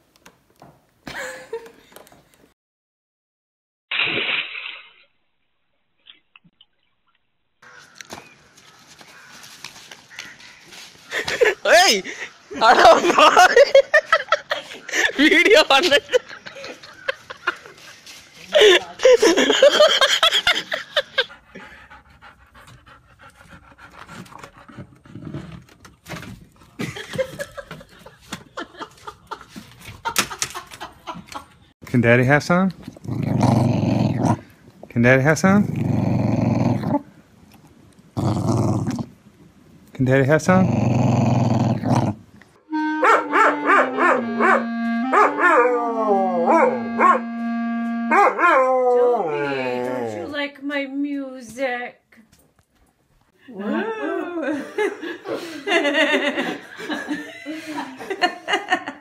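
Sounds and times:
dog panting: 21.0s - 25.6s
instrument playing slow tune: 42.7s - 48.9s
dog howling: 43.0s - 47.2s, 48.1s - 50.3s.

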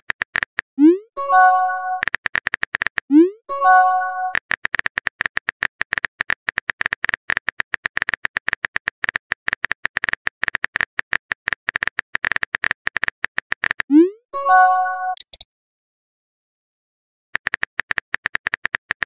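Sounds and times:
keyboard typing clicks: 0.0s - 14.1s, 14.9s - 15.4s, 17.4s - 19.0s
chime: 1.2s - 2.0s, 3.5s - 4.3s, 14.4s - 15.2s.

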